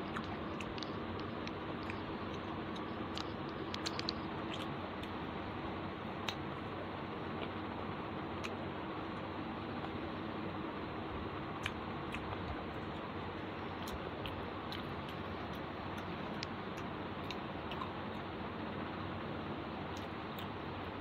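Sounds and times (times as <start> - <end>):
mouth clicks and smacks: 0.0 - 5.2, 6.2 - 6.5, 11.6 - 13.1, 13.7 - 18.3
person chewing food: 0.0 - 5.2, 11.6 - 18.2
steady background hiss: 0.0 - 21.0.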